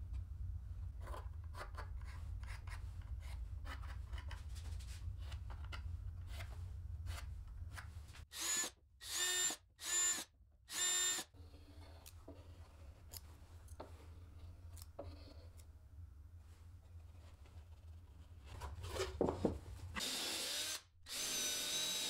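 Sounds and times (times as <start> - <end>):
drill bursts into board: 8.3 - 11.3.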